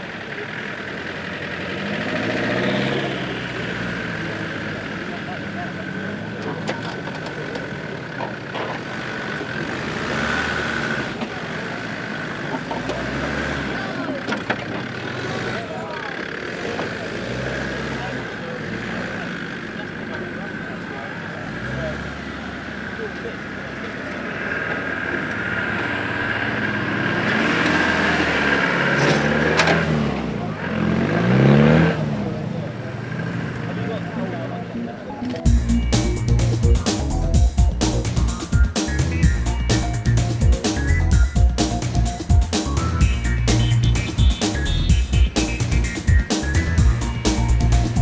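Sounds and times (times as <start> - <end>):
engine running at low revs: 0.0 - 48.0.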